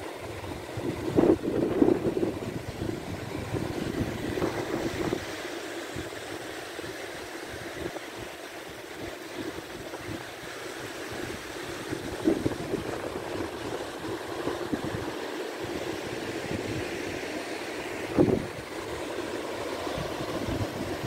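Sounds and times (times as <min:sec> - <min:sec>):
small surf breaking on beach: 0:00.0 - 0:21.0
wind buffeting microphone: 0:00.3 - 0:05.3, 0:11.1 - 0:17.2, 0:18.0 - 0:19.1, 0:19.8 - 0:21.0.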